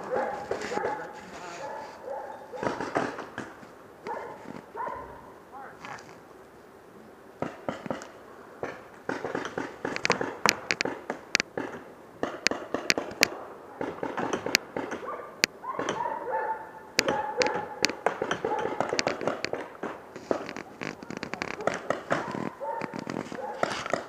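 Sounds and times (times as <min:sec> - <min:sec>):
paintball markers firing: 0:07.4 - 0:15.1, 0:17.0 - 0:24.0.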